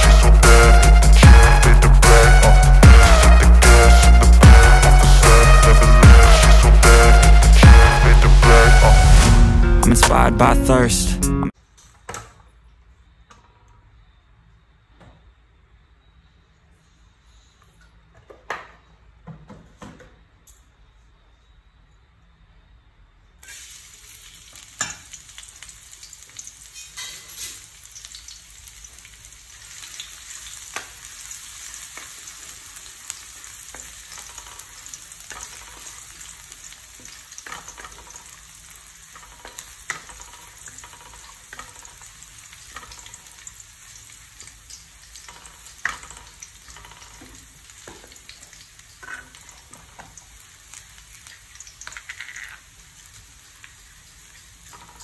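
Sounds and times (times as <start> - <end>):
garlic sizzling in hot oil: 23.4 - 55.0.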